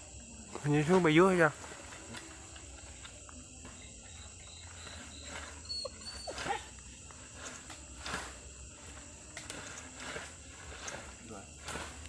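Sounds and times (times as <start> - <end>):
night insects chirring: 0.0 - 12.0
animal whining calls: 4.0 - 6.8.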